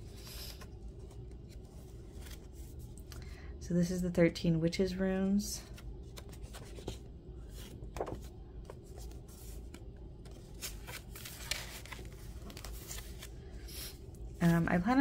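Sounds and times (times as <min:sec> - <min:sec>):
faint low hum: 0:00.0 - 0:15.0
paper pages rustling: 0:00.2 - 0:03.2, 0:05.7 - 0:15.0.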